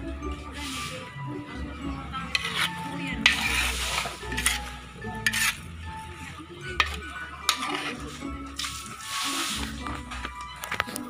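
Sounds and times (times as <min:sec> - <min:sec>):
metal ladle scraping wok: 0:00.5 - 0:01.4, 0:02.2 - 0:10.6
low sizzle: 0:03.2 - 0:06.2.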